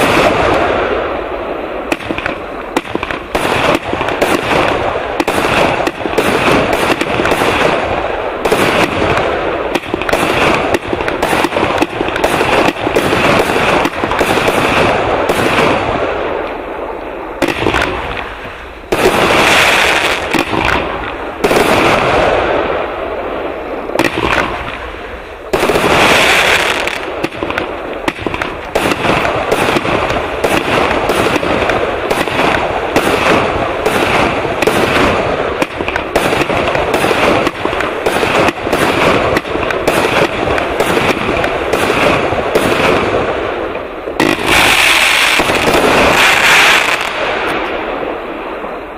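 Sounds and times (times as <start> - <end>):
firework cake shots and bursts: 0.0 - 16.7, 17.4 - 47.8
firework hiss: 23.9 - 41.0, 44.2 - 47.6.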